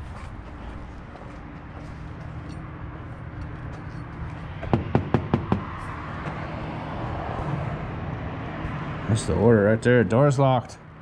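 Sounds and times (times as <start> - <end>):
low background hum: 0.0 - 8.9
knocks on glass door: 4.6 - 5.7.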